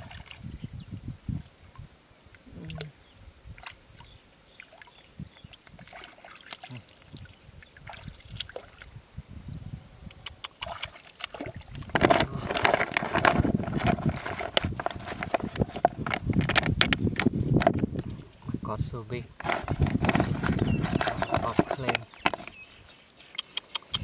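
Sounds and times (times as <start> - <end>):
small water splashes: 0.0 - 0.5, 2.6 - 9.0, 10.4 - 15.0.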